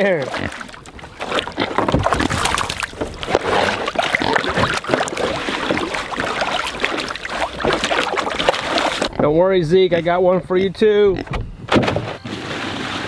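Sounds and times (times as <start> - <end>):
pig splashing in muddy water: 0.0 - 9.2.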